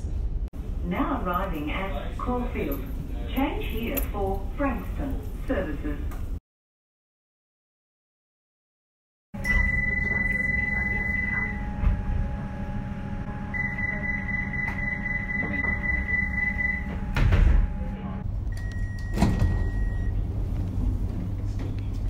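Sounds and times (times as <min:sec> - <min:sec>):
train door warning beeps: 0:09.4 - 0:12.6, 0:13.4 - 0:20.2
steady low hum: 0:09.4 - 0:22.0
train doors shutting thud: 0:16.8 - 0:17.9, 0:19.0 - 0:19.9.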